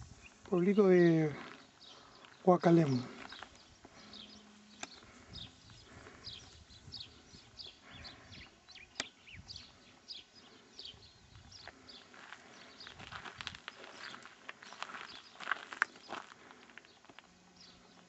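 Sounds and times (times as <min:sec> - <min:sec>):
faint birds chirping: 0:00.0 - 0:18.0
sharp clicks: 0:04.7 - 0:05.0, 0:08.9 - 0:09.2.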